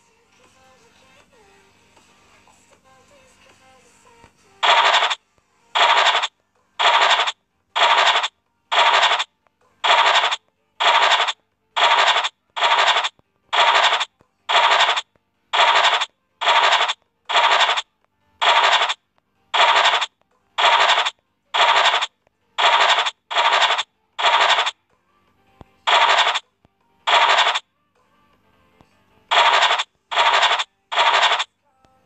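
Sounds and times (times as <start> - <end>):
scratchy noise bursts: 4.6 - 5.2, 5.8 - 15.0, 15.6 - 17.8, 18.4 - 19.0, 19.6 - 24.7, 25.9 - 26.4, 27.1 - 27.6, 29.3 - 31.5.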